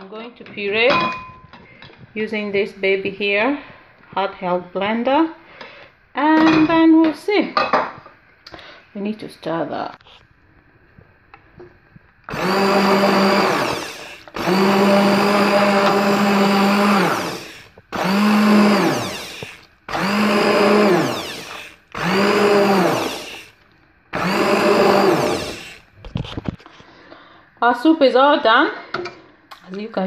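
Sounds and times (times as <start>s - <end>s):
immersion blender motor hum: 12.3s - 25.9s.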